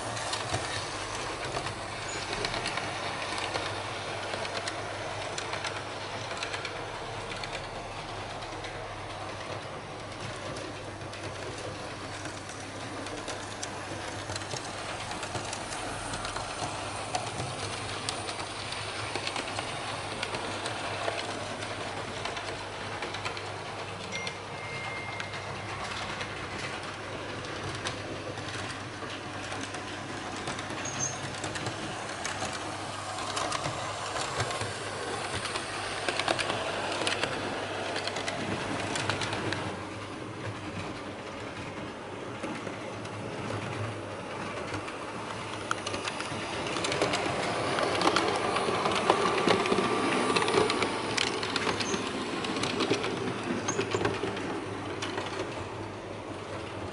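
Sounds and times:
model trains rolling on metal track: 0.0s - 56.9s
wheels clicking over rail joints: 0.0s - 56.9s.

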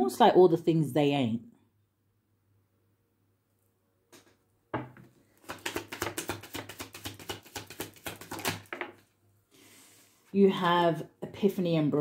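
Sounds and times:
cards being shuffled: 5.4s - 9.0s.

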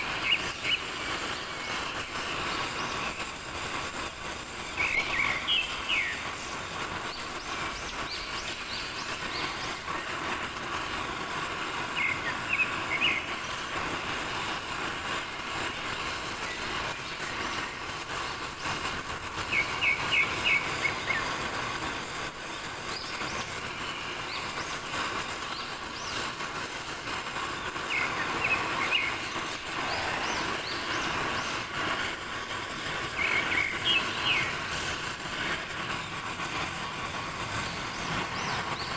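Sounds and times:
cutting torch flame hissing: 0.0s - 38.9s
high chirps: 33.0s - 36.1s.

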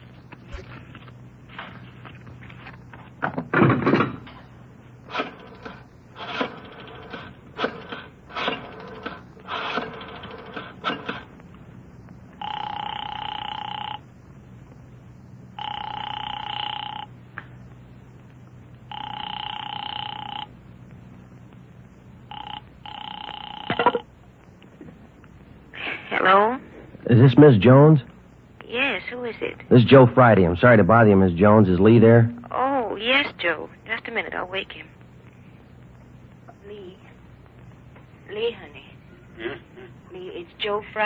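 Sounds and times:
telephone line ringing: 12.3s - 14.1s, 15.6s - 17.2s, 18.9s - 20.6s, 22.3s - 24.0s.

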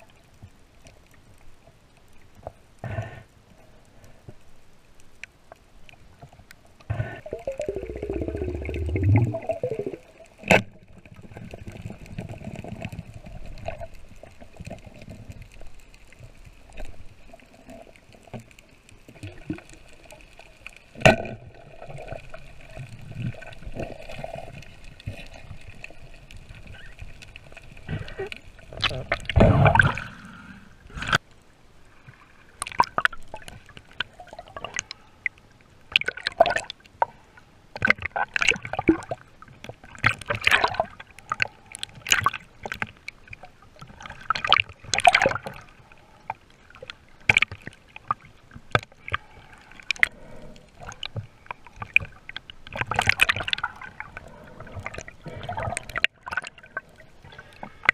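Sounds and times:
water gurgling underwater: 6.9s - 15.5s, 20.9s - 31.2s, 32.6s - 34.9s, 35.9s - 36.8s, 37.8s - 42.8s, 43.4s - 45.8s, 49.8s - 57.9s
rush of water: 6.9s - 35.3s, 37.8s - 57.9s.

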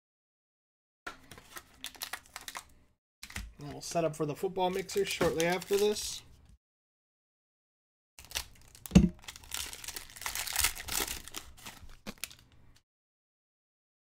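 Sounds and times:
foil pack crinkling and tearing: 1.2s - 3.4s, 4.7s - 6.2s, 8.2s - 12.5s.

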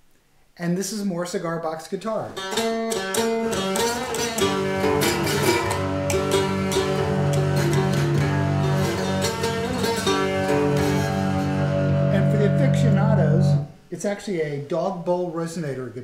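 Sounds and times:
plucked guitar notes: 2.4s - 13.9s.

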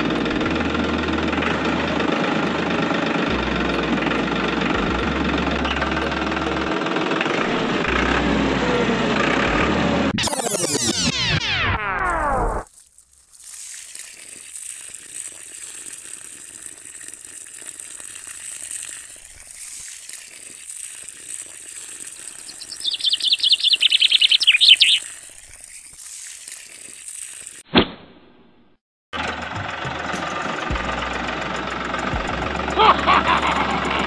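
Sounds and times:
water trickling onto sand: 12.7s - 27.6s.

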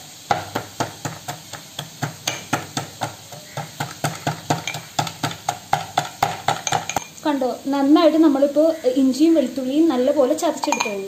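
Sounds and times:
pestle pounding in a mortar: 0.3s - 7.1s.

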